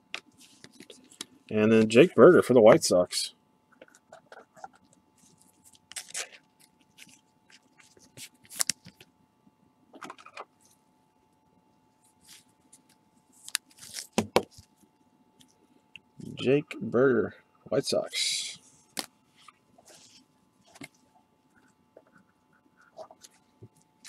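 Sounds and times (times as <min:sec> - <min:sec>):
gloved hands rustling and scraping: 0:00.1 - 0:02.8, 0:03.8 - 0:09.0, 0:12.0 - 0:15.6, 0:18.4 - 0:24.0.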